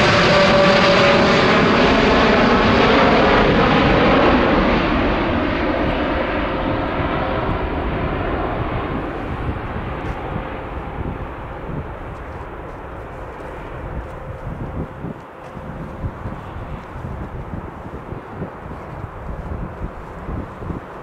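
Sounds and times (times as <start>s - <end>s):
jet engines rumbling and whining: 0.0s - 21.0s.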